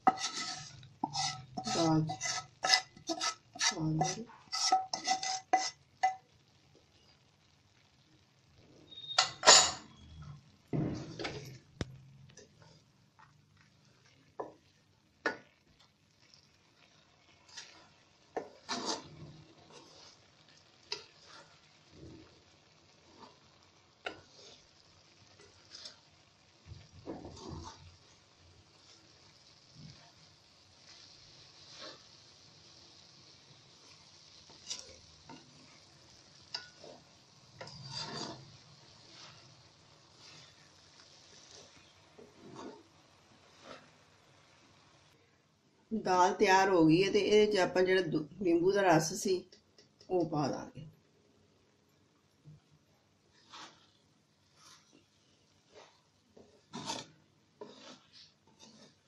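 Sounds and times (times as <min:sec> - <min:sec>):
spatula scraping metal pan: 0:00.0 - 0:06.2, 0:08.9 - 0:10.3, 0:17.4 - 0:21.5, 0:23.1 - 0:24.8, 0:25.4 - 0:28.0, 0:33.9 - 0:43.9, 0:53.4 - 0:59.0.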